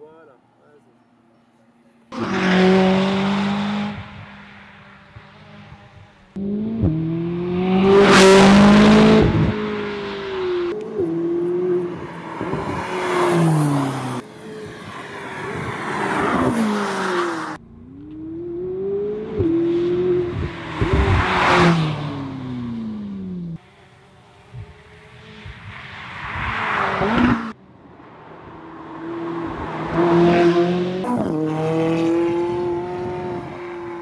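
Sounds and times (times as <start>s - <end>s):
sports car engine accelerating: 2.2s - 14.7s, 17.5s - 25.6s, 28.6s - 34.0s.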